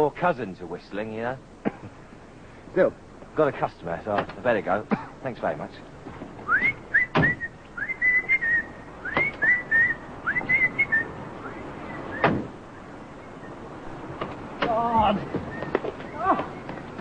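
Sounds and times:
man whistling a tune: 0:06.5 - 0:12.3
thumps: 0:09.1 - 0:09.5, 0:12.1 - 0:12.6.

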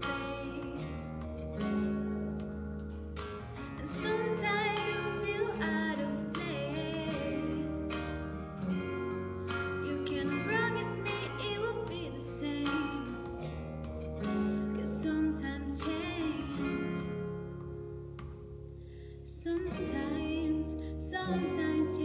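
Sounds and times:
woman singing with vibrato: 0:00.0 - 0:01.1, 0:03.8 - 0:08.4, 0:09.8 - 0:13.5, 0:14.6 - 0:17.1, 0:19.3 - 0:22.0
instrumental accompaniment: 0:00.0 - 0:19.1.

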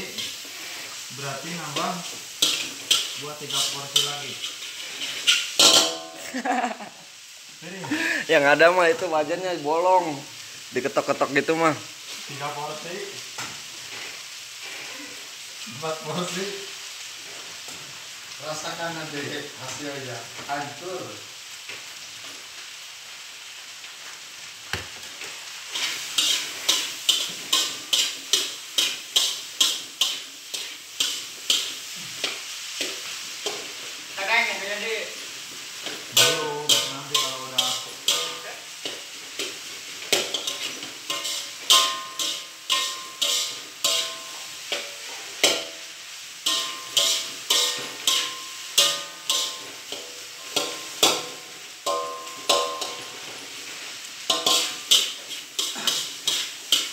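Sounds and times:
rice sizzling in a wok: 0:00.0 - 0:56.9
spatula scraping and knocking wok: 0:00.2 - 0:06.4, 0:24.7 - 0:34.0, 0:35.5 - 0:56.9.

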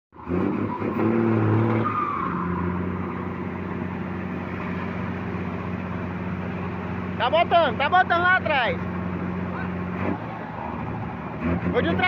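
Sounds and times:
diesel truck engine under load: 0:00.2 - 0:12.0.

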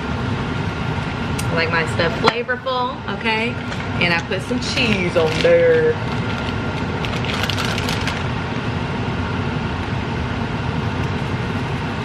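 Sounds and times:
exhaust fan humming: 0:00.0 - 0:12.0
plastic bag crinkling: 0:04.6 - 0:08.3.

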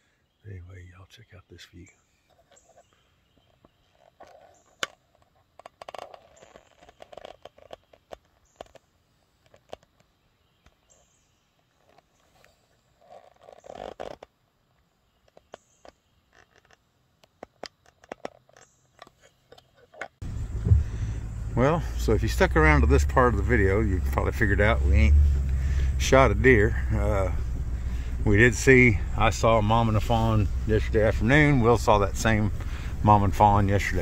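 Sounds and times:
low vehicle rumble: 0:20.2 - 0:34.0.

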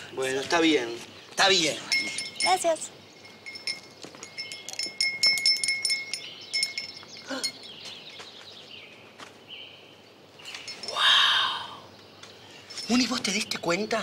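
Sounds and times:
chimes ringing: 0:01.8 - 0:07.9
tinkles and gliding tones: 0:01.8 - 0:08.2.

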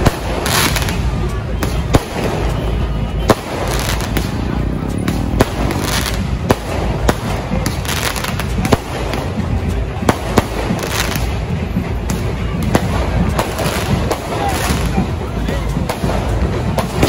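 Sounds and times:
fireworks bangs with crackling: 0:00.0 - 0:17.0
steady background din: 0:00.0 - 0:17.0.

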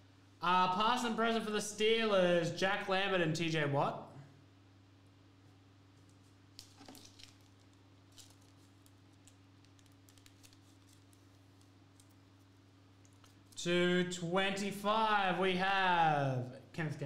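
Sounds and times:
cards being leafed through: 0:06.1 - 0:13.6.

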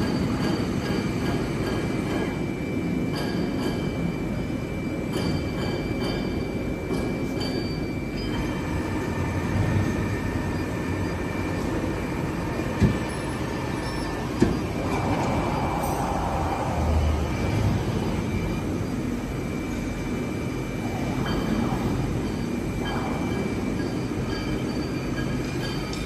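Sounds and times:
machine rumble and hum: 0:00.0 - 0:26.0
thin steady whine: 0:00.0 - 0:26.0.

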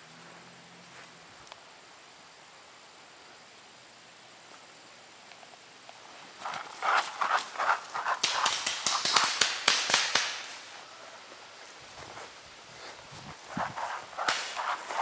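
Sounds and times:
paintball markers firing: 0:08.2 - 0:10.6.

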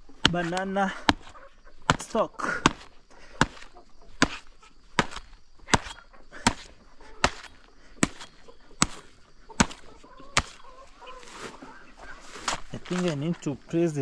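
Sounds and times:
machete chopping banana stalk: 0:00.2 - 0:01.3, 0:01.9 - 0:10.6.

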